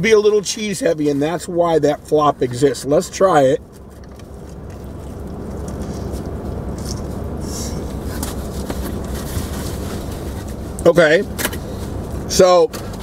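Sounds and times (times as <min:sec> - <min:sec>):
car engine idling: 0:00.0 - 0:13.0
person chewing crunchy food: 0:03.8 - 0:07.3.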